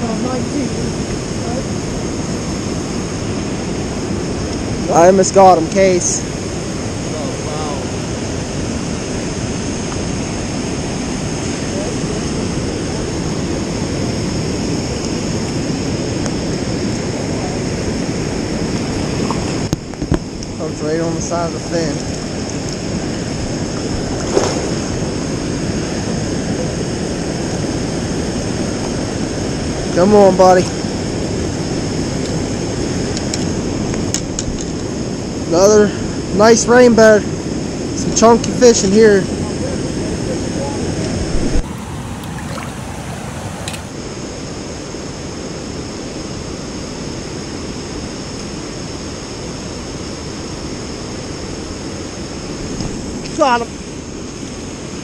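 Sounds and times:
river rapids roaring: 0:41.4 - 0:44.0.

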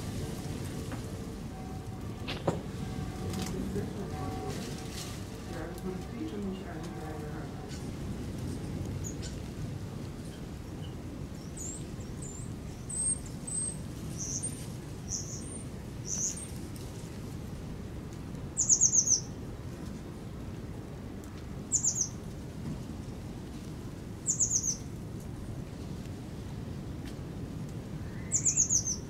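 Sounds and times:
small birds chirping: 0:10.2 - 0:16.5, 0:18.6 - 0:19.3, 0:21.7 - 0:22.2, 0:24.2 - 0:24.9, 0:28.0 - 0:29.0.

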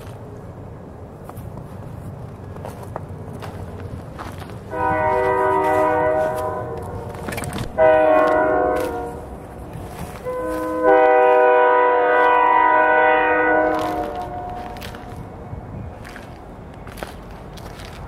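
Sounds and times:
locomotive air horn blasts: 0:04.6 - 0:15.2.

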